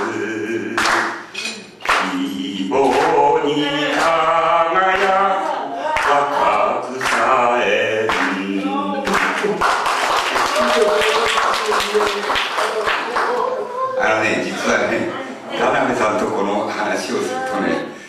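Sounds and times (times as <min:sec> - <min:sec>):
elderly man singing unaccompanied: 0:00.0 - 0:09.9
sharp hand claps: 0:00.8 - 0:02.1, 0:07.0 - 0:07.3, 0:08.1 - 0:08.4, 0:09.0 - 0:13.5.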